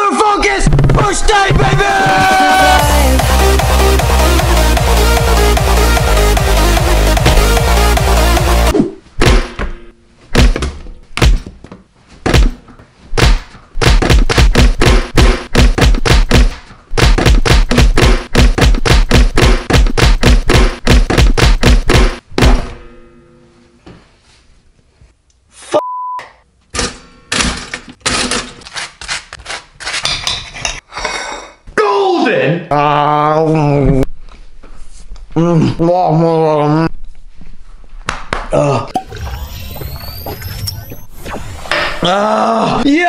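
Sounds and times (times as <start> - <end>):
rapid heavy thuds: 12.2 - 22.7
short beep: 25.7 - 26.4.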